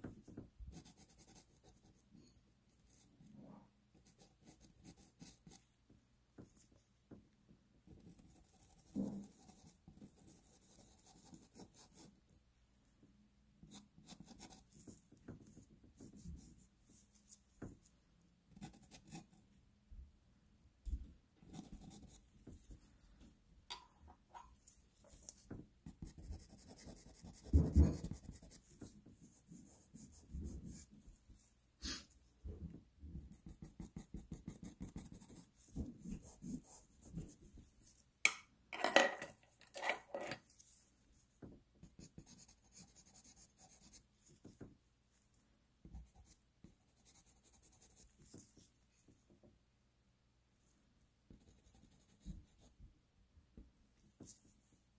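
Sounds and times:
pencil scratching on paper: 0.0 - 2.0, 2.7 - 3.3, 3.9 - 5.7, 7.9 - 12.1, 13.6 - 17.7, 18.5 - 19.4, 21.4 - 22.9, 25.0 - 32.2, 33.2 - 38.0, 41.8 - 44.6, 45.9 - 48.7, 51.3 - 52.7.

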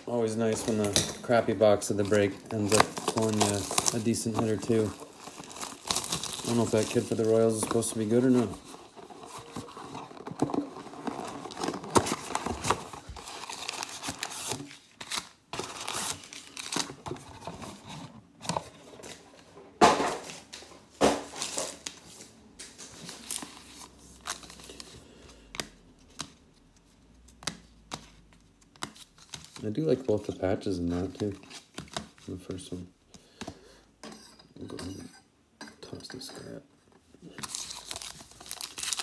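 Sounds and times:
foil packs crinkling: 0.0 - 9.7, 10.7 - 17.2, 37.4 - 39.0.

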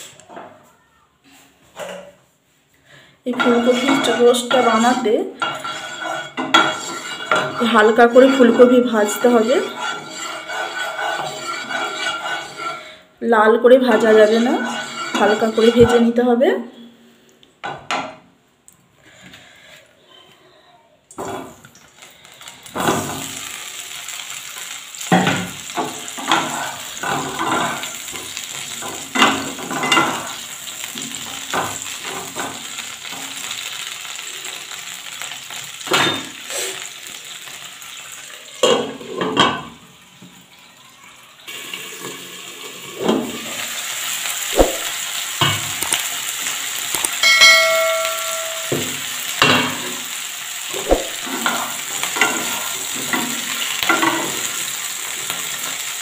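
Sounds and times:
oil sizzling in a frying pan: 3.2 - 16.3, 21.2 - 56.0
knocks and clatter in pan: 3.3 - 12.7, 17.6 - 18.2, 22.7 - 23.5, 25.0 - 33.5, 38.6 - 39.8, 42.9 - 43.5, 44.6 - 46.0, 46.9 - 50.0, 50.7 - 54.6
short ding: 47.2 - 49.0.

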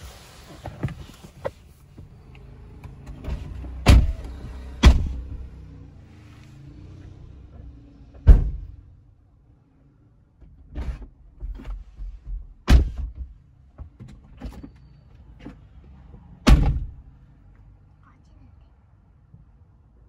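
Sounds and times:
car doors shutting: 0.4 - 5.6, 8.2 - 8.8.

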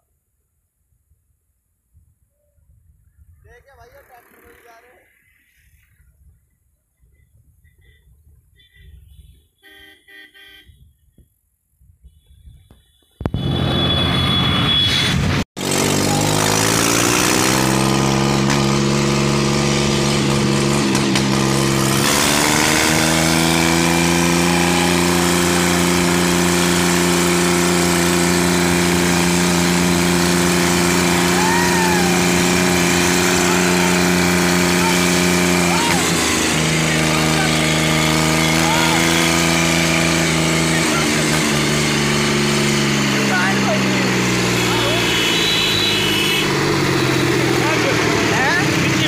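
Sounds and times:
faint vehicle horn toots: 7.2 - 11.1, 12.0 - 15.3, 44.5 - 46.6
tractor diesel engine: 13.3 - 49.0.

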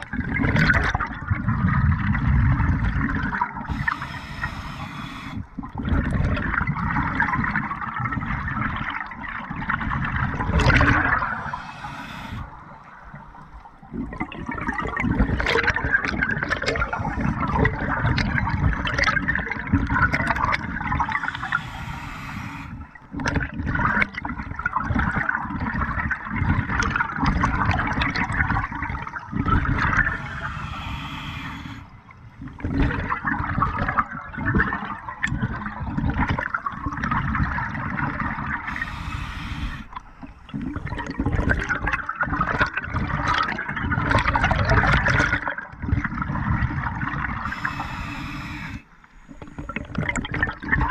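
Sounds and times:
bubbling underwater exhalations: 0.2 - 50.9
regulator hissing inhalation: 3.6 - 5.5, 10.7 - 13.5, 20.9 - 23.0, 29.8 - 32.0, 38.7 - 40.5, 47.4 - 49.9.

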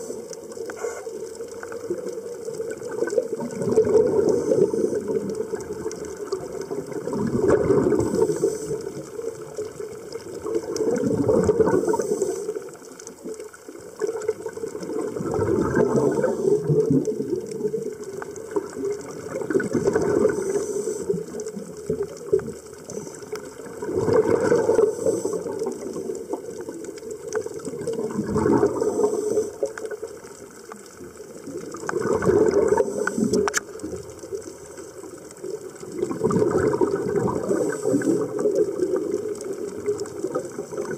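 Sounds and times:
diver inhaling through regulator: 0.0 - 1.4, 4.0 - 5.4, 7.8 - 9.2, 11.5 - 12.8, 15.8 - 16.9, 19.9 - 21.5, 24.3 - 25.8, 28.5 - 30.0, 32.5 - 33.6, 37.4 - 38.5
diver exhaling bubbles underwater: 0.0 - 12.9, 13.8 - 30.3, 31.1 - 34.4, 35.0 - 40.9.

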